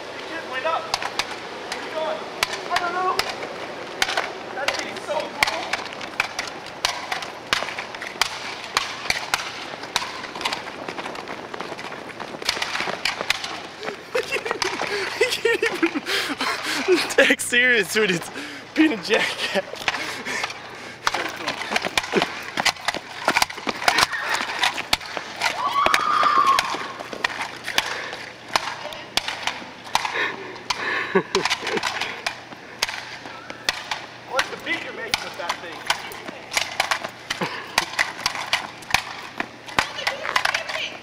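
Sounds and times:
plastic ball clacking on asphalt: 0:00.9 - 0:13.8.

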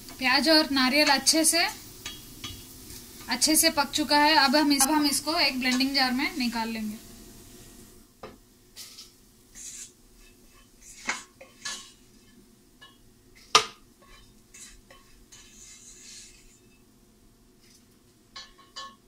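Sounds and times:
spatula scraping frying pan: 0:08.8 - 0:16.9.

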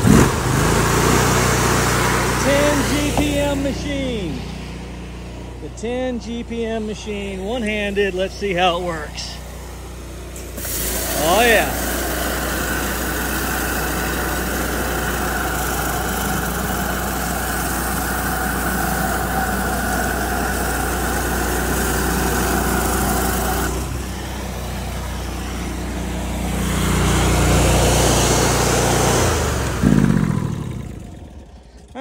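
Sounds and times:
pressure washer engine running: 0:00.0 - 0:32.0
surface cleaner spray hiss: 0:09.6 - 0:26.7.

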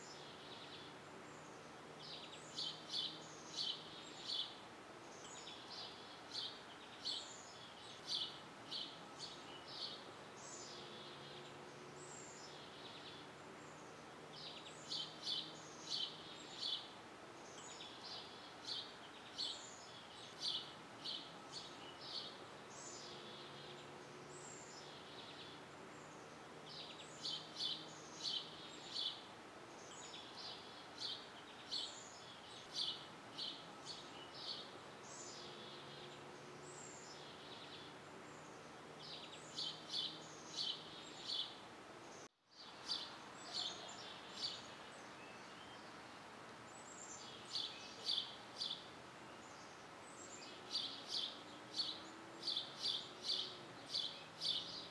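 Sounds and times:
faint background hiss: 0:00.0 - 0:54.9
small birds chirping: 0:00.0 - 0:54.9.

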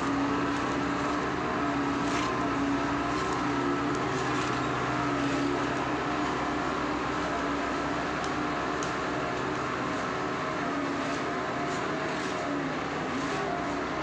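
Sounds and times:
road roller diesel engine: 0:00.0 - 0:14.0.

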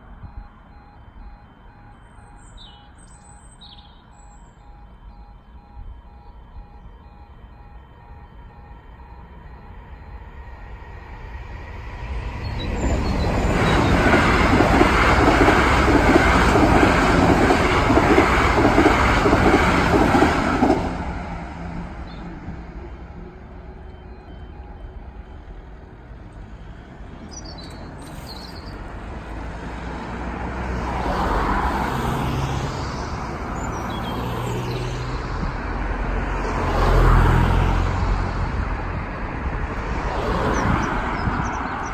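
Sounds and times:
electric train passing: 0:00.0 - 0:41.9
road vehicles driving over crossing: 0:00.0 - 0:41.9.

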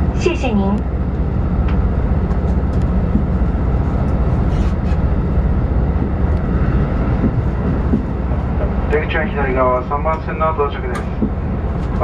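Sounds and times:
train rumble inside car: 0:00.0 - 0:12.0.

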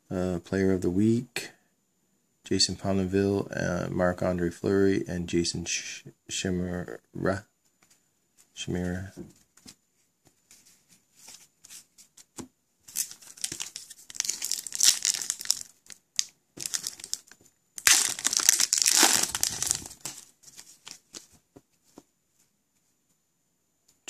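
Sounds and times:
wrapper tearing and crinkling: 0:12.9 - 0:21.2.

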